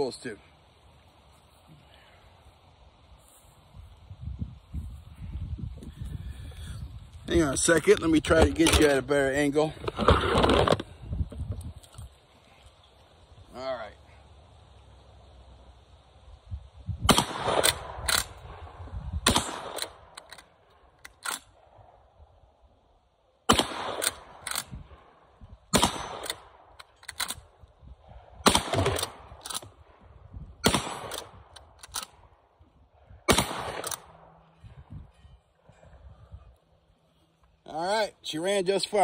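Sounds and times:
metallic clacks of shotgun lever: 7.8s - 9.0s, 19.8s - 21.5s, 24.0s - 24.7s, 26.2s - 27.4s, 28.9s - 29.7s, 31.1s - 32.2s
shotgun shots: 17.1s - 18.6s, 19.2s - 20.1s, 23.5s - 24.7s, 25.7s - 26.5s, 28.4s - 29.7s, 30.6s - 32.2s, 33.2s - 34.3s.

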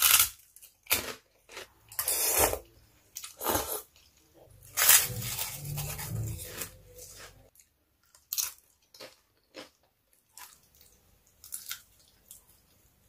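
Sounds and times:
crunching bites and chewing: 0.0s - 4.0s, 4.6s - 12.7s
low hum: 4.4s - 7.5s.

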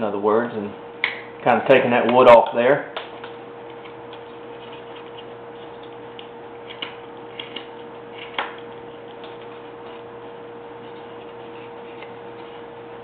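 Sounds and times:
steady hum: 0.0s - 13.0s
knife carving wood: 3.6s - 13.0s.

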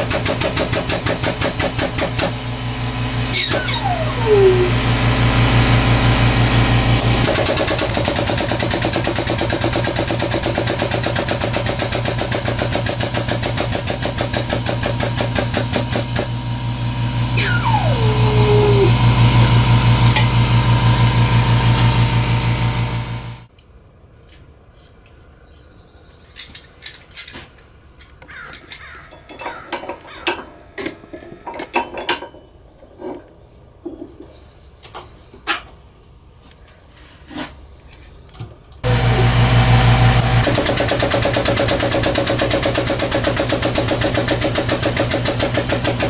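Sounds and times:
hydraulic pump pulsing hum: 1.0s - 8.9s, 14.2s - 23.5s, 38.8s - 46.0s
falling whine: 3.1s - 7.4s, 16.8s - 23.5s.

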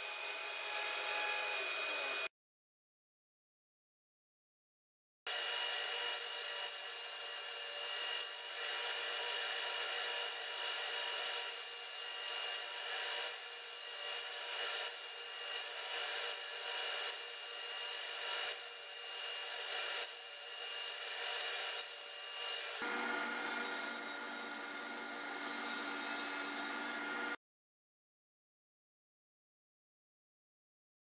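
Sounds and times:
table saw motor hum: 0.0s - 2.3s, 21.3s - 27.4s
saw blade cutting wood: 5.3s - 27.4s.

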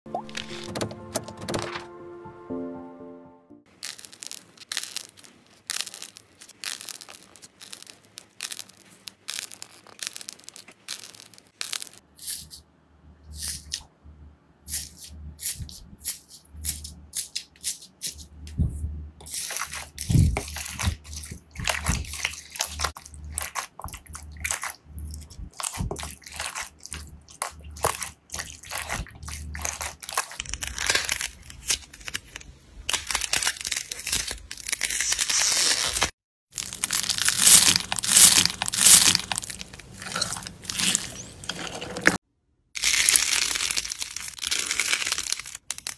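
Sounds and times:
slime squishing and crackling: 3.7s - 12.0s, 19.2s - 42.2s, 42.8s - 45.9s
foam beads crunching: 3.7s - 12.6s, 19.2s - 42.2s, 42.8s - 45.9s.

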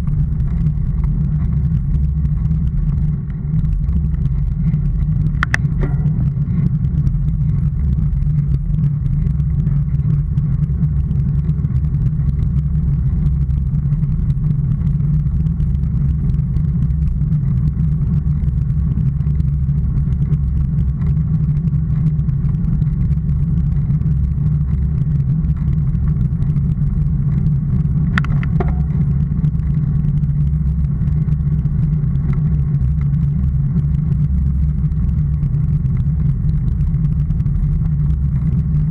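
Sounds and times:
vehicle rumble on rough lane: 0.0s - 38.9s
wind noise: 0.0s - 38.9s
sharp click: 5.4s - 6.2s.

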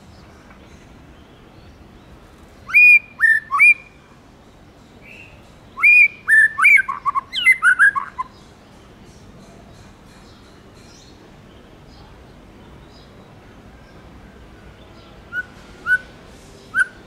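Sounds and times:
bird singing whistled notes: 2.6s - 4.0s, 5.0s - 8.5s, 14.9s - 17.0s.

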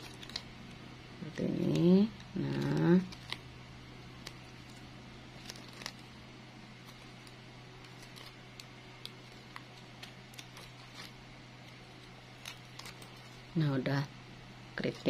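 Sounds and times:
plastic bag crinkling: 0.0s - 0.7s, 1.6s - 11.2s
steady low hum: 0.0s - 15.0s.

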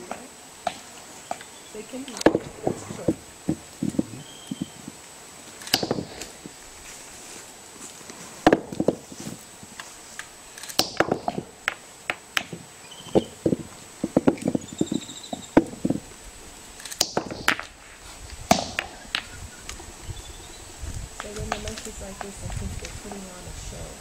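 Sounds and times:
scraping and leaf rustling: 0.0s - 24.0s
faint bird chirps: 1.2s - 2.6s, 4.0s - 4.9s, 12.8s - 13.4s, 14.4s - 15.6s, 18.9s - 20.8s.

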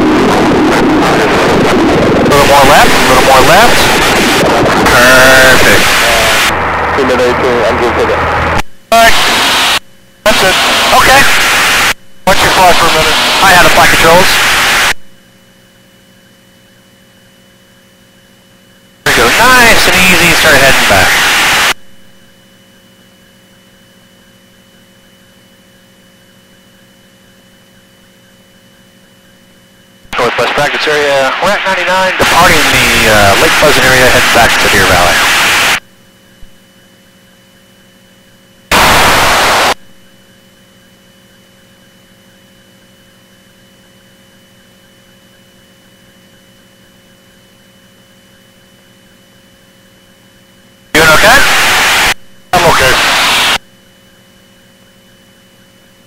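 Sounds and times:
aircraft engine drone: 0.0s - 15.0s, 19.1s - 21.8s, 30.2s - 35.8s, 38.7s - 40.3s, 51.0s - 53.6s
intercom hum and hiss: 0.0s - 15.0s, 19.0s - 21.8s, 30.0s - 35.8s, 38.7s - 39.8s, 51.0s - 53.6s
radio static burst: 0.0s - 15.0s, 19.1s - 21.8s, 30.1s - 35.8s, 38.7s - 39.8s, 51.0s - 53.6s
thin high whine: 0.0s - 15.0s, 18.8s - 21.8s, 26.9s - 50.2s, 51.0s - 55.8s
faint electrical hum: 1.3s - 56.0s.

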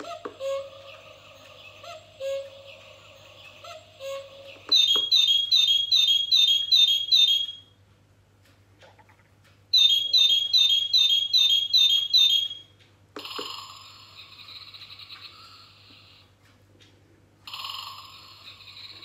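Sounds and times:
recorded birdsong from clock speaker: 0.0s - 7.7s, 9.8s - 12.7s.

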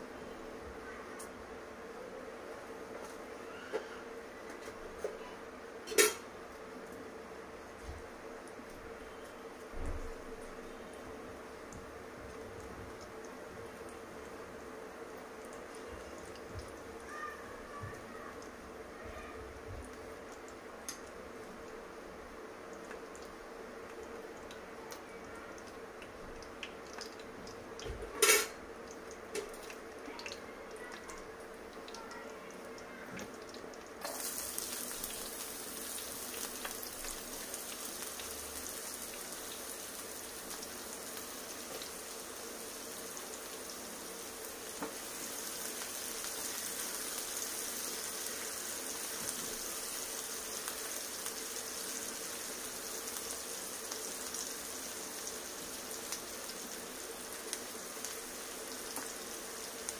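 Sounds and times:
seeds ticking in hot oil: 5.8s - 18.9s, 19.5s - 59.9s
onions sizzling in oil: 33.2s - 59.9s.

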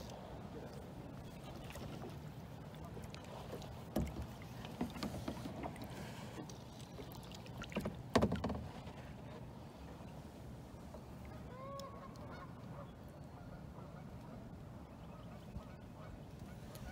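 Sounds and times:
water lapping: 0.0s - 16.9s
thump on kayak: 3.9s - 6.1s, 7.7s - 9.1s.

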